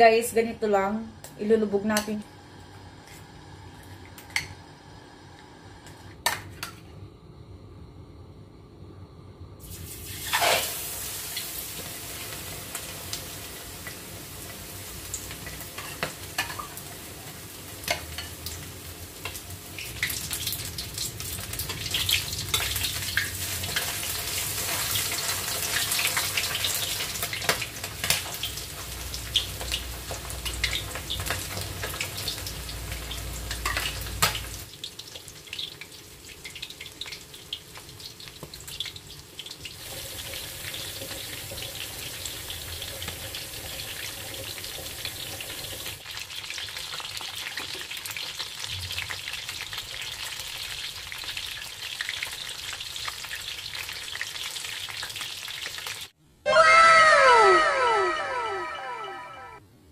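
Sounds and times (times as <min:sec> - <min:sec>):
food deep-frying in hot oil: 0:09.6 - 0:56.2
oil crackling and popping: 0:17.8 - 0:56.1.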